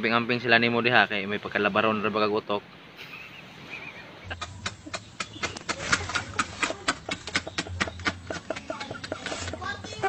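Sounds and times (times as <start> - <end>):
man laughing hysterically: 6.1 - 9.6.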